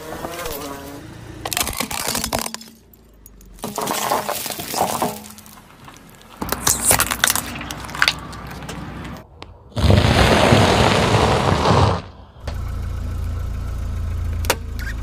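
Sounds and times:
crackling under tyre: 0:00.0 - 0:15.0
plastic tub cracking under tyre: 0:01.4 - 0:02.8, 0:03.6 - 0:08.8.

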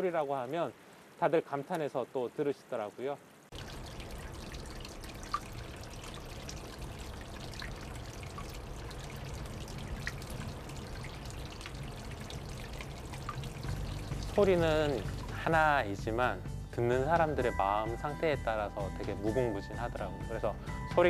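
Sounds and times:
water dripping into a pool: 0:00.0 - 0:16.4
low steady rumble: 0:03.5 - 0:20.4.

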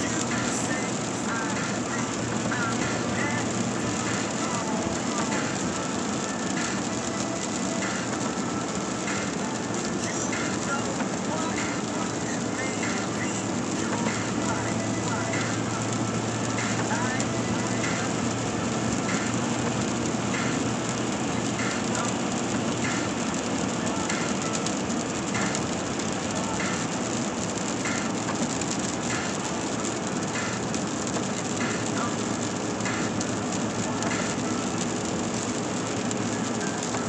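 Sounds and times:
tyre noise on wet road: 0:00.0 - 0:37.0
windshield wipers swishing: 0:00.0 - 0:37.0.

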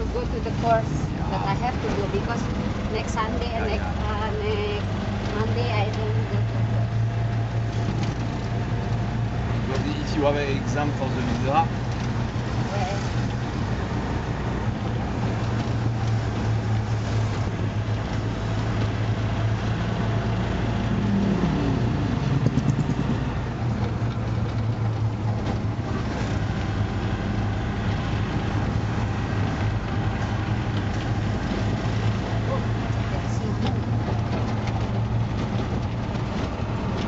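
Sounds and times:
rickshaw engine running: 0:00.0 - 0:37.0.

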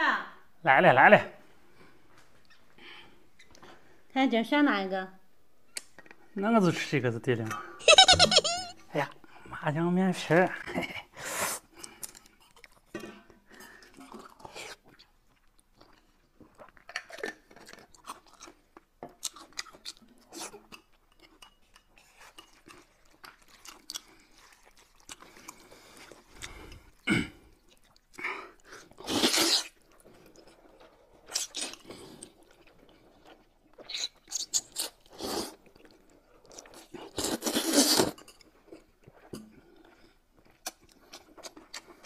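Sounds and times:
chewing and slurping noodles: 0:11.6 - 0:12.9, 0:13.5 - 0:42.0.

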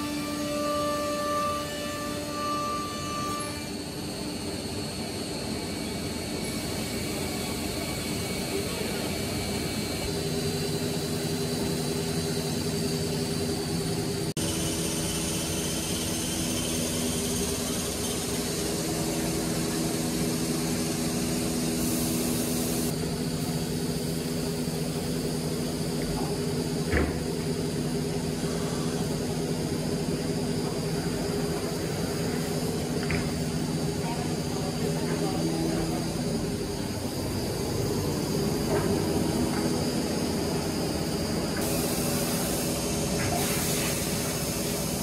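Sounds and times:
router machine hum and hiss: 0:00.0 - 0:45.0.

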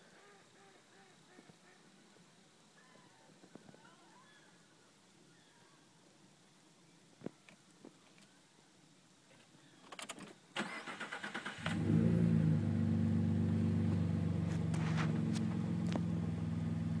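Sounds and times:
engine cranking and idling: 0:10.6 - 0:17.0.

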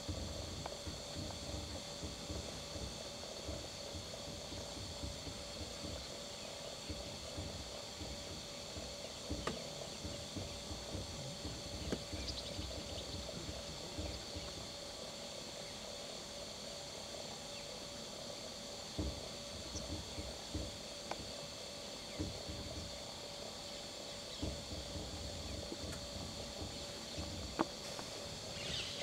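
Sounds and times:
low uneven rumble: 0:00.0 - 0:14.8, 0:24.3 - 0:29.0.

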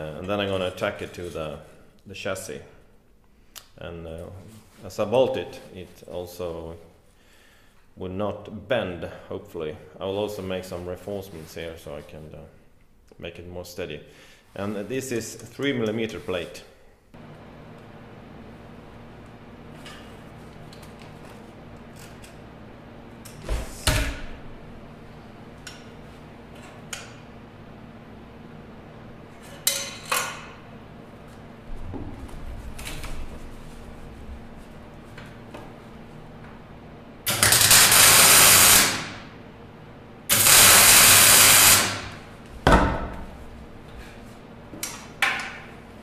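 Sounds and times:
steady low hum: 0:00.0 - 0:46.0
arc welding hiss: 0:37.3 - 0:39.2, 0:40.3 - 0:42.2.

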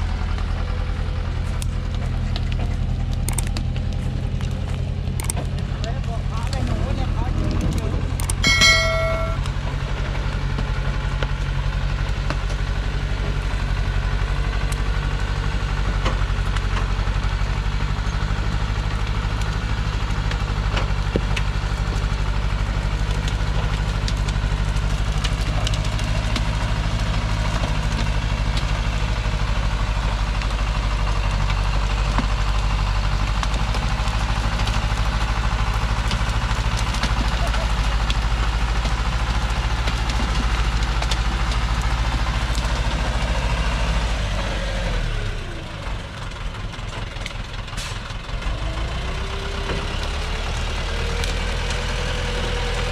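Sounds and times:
truck diesel engine running: 0:00.0 - 0:52.9
short high-pitched tone: 0:08.4 - 0:09.5.

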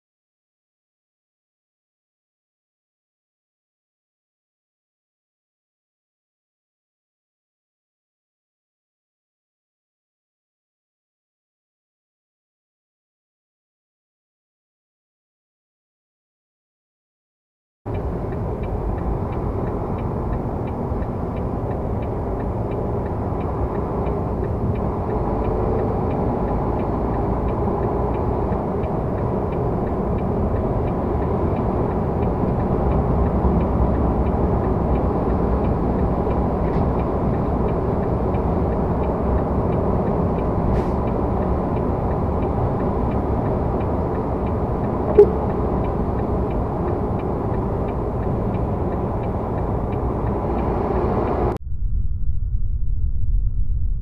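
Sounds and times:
light regular ticking: 0:17.9 - 0:51.6
truck road and engine rumble: 0:17.9 - 0:51.6.

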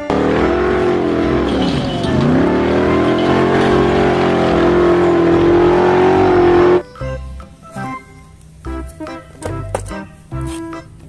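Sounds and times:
buggy engine revving hard: 0:00.0 - 0:06.8.

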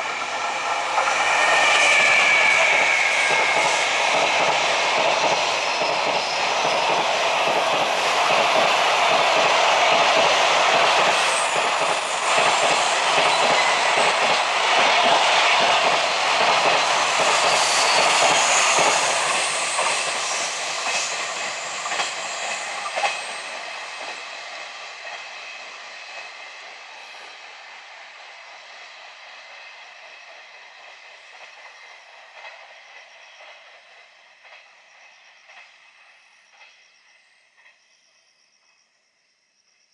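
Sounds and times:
freight train wheels clattering: 0:00.0 - 0:25.4.

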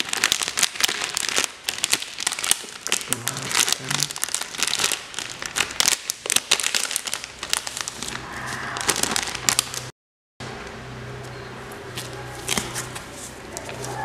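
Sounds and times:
plastic packaging crinkling: 0:00.0 - 0:09.9
low hum: 0:07.9 - 0:11.6.

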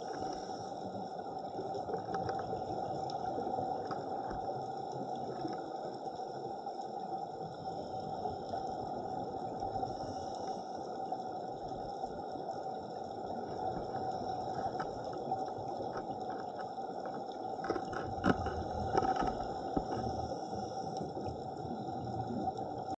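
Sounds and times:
underwater rushing hiss: 0:00.0 - 0:01.0, 0:19.5 - 0:22.5.

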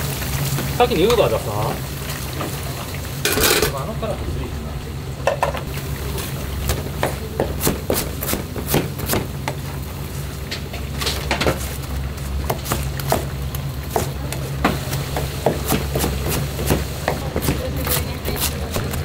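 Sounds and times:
steady low hum: 0:01.6 - 0:19.0
kitchen knocks and clatter: 0:03.3 - 0:03.8, 0:05.2 - 0:05.7.

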